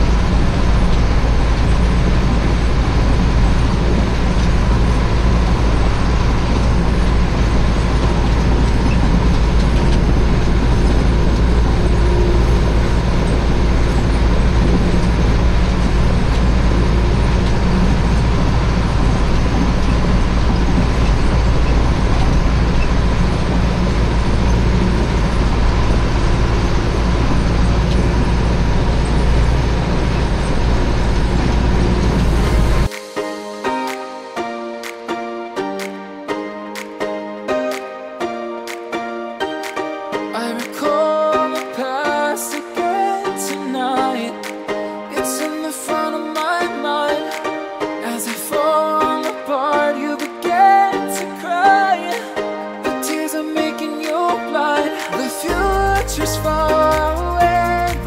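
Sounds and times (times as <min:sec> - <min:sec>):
tractor engine under load: 0:00.0 - 0:32.9
faint steady whine: 0:00.0 - 0:34.4.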